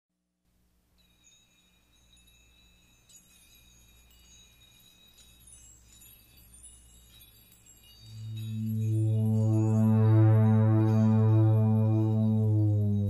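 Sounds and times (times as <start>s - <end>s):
high chime-like tones: 0.9s - 13.0s
low hum: 8.1s - 13.0s
deep-pitched music: 8.3s - 13.0s.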